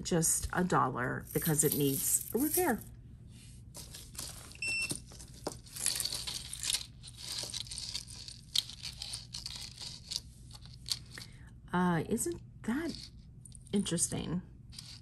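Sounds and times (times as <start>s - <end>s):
metal chains clinking: 1.2s - 2.9s, 3.8s - 11.2s
rustling: 3.4s - 11.2s, 14.7s - 15.0s.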